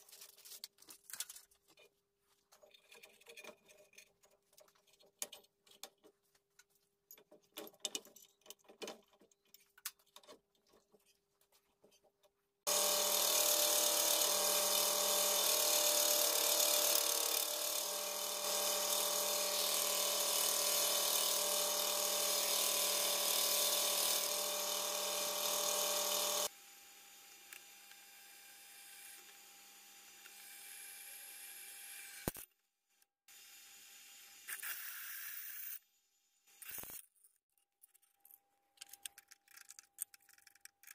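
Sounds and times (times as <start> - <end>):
drill press boring into steel: 12.7 - 26.5
belt grinder running with hiss: 12.7 - 27.5.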